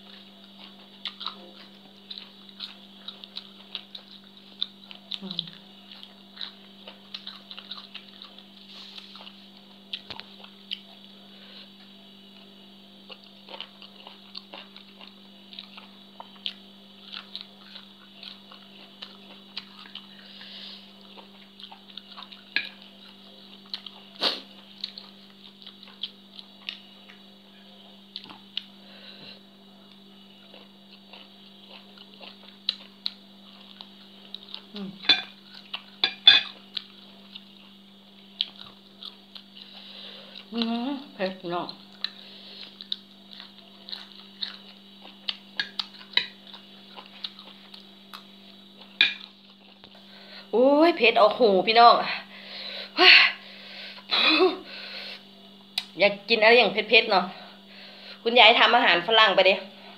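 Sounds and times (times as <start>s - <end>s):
person chewing food: 0.0s - 41.0s, 41.7s - 50.5s
steady background hum: 0.0s - 59.9s.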